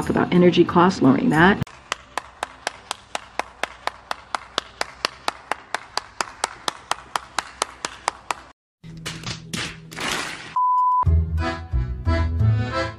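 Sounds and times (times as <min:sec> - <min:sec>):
person clapping hands: 0:01.7 - 0:10.4.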